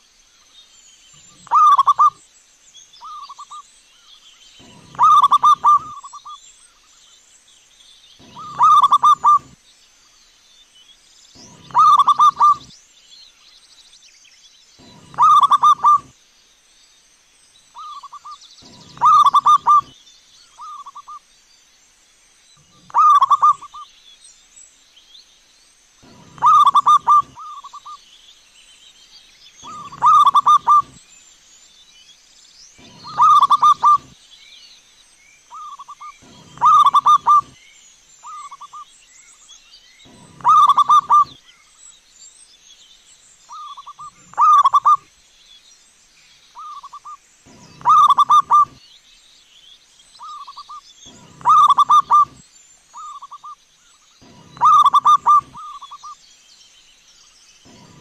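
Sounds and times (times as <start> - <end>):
dove cooing: 1.3 - 2.2, 4.6 - 6.4, 8.2 - 9.6, 11.4 - 12.7, 14.8 - 16.1, 17.8 - 19.9, 22.7 - 23.8, 26.0 - 27.9, 29.6 - 31.0, 32.8 - 34.2, 35.6 - 37.6, 40.1 - 41.4, 43.6 - 45.0, 46.6 - 48.8, 51.1 - 52.4, 54.2 - 56.1, 57.7 - 58.0.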